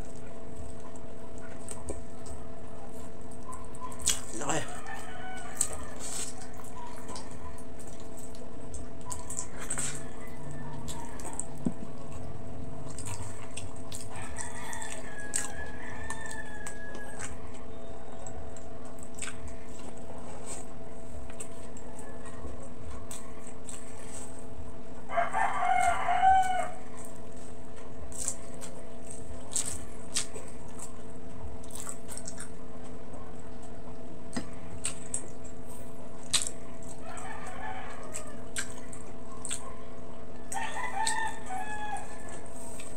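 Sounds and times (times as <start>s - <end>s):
chewing and mouth clicks: 0.0s - 24.5s, 25.4s - 35.6s, 36.2s - 39.8s, 40.4s - 42.9s
steady background hum: 0.0s - 42.9s
rooster crowing: 4.4s - 6.3s, 9.6s - 11.4s, 14.1s - 17.8s, 25.1s - 27.0s, 37.0s - 38.6s, 40.5s - 42.5s.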